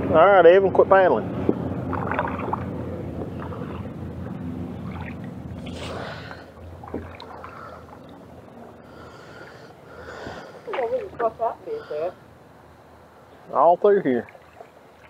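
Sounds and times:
low rumble of water: 0:00.0 - 0:11.8, 0:12.4 - 0:15.0
camera brushing against hand: 0:05.6 - 0:06.1.

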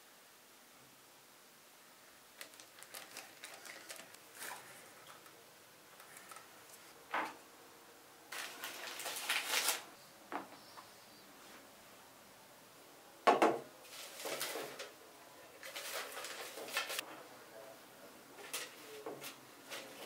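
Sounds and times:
knock: 0:13.3 - 0:13.6
rustling and scraping: 0:13.8 - 0:15.0, 0:18.4 - 0:20.0.

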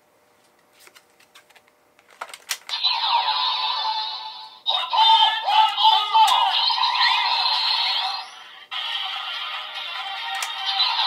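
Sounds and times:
toy electronic sound effects and music: 0:02.7 - 0:11.0
plastic toy clicks: 0:10.3 - 0:10.6.

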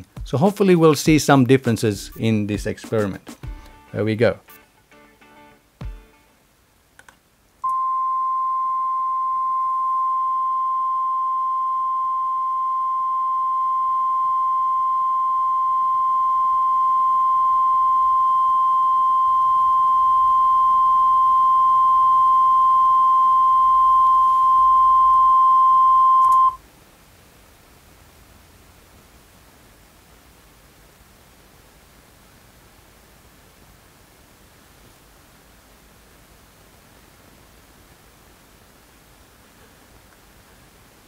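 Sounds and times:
steady test tone: 0:07.6 - 0:26.6.

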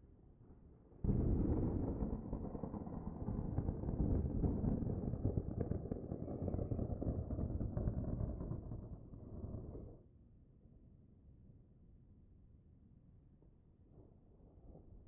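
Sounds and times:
pyroclastic flow rumbling and crackling: 0:01.4 - 0:10.0.

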